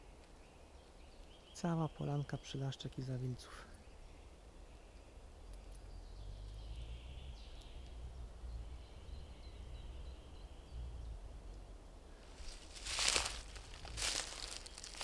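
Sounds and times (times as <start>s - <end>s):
rustle of leaf litter underfoot: 12.2s - 15.0s.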